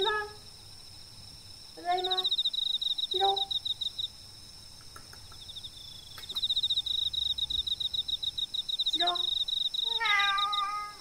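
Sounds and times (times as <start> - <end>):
insect trilling: 0.0 - 11.0
cat meowing: 9.8 - 11.0.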